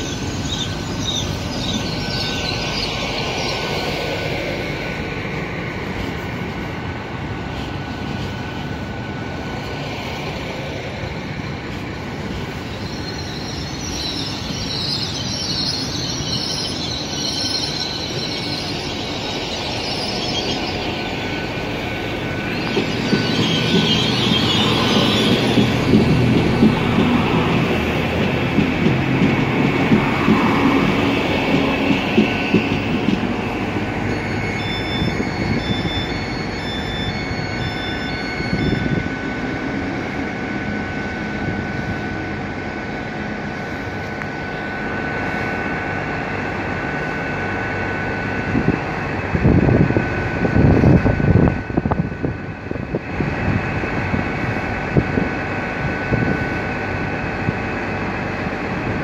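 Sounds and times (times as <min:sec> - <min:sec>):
steady high whine: 0:00.0 - 0:59.0
train wheels rumbling on rails: 0:00.0 - 0:59.0
short high beeps: 0:34.0 - 0:39.1.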